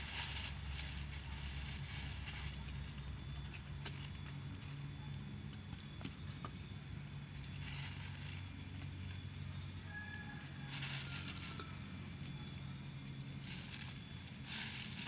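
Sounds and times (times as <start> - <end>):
flower petals rustling: 0.0 - 4.8, 7.3 - 11.9, 13.1 - 15.0
low steady hum: 0.0 - 15.0.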